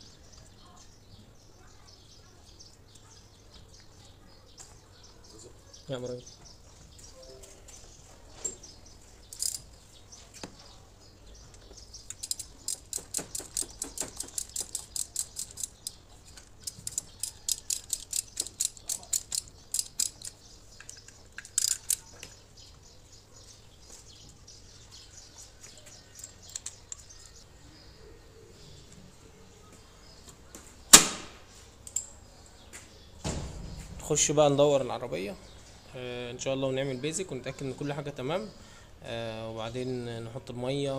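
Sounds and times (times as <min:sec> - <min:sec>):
ratchet wrench clicking: 0:09.3 - 0:09.7, 0:12.1 - 0:20.4, 0:21.4 - 0:22.1.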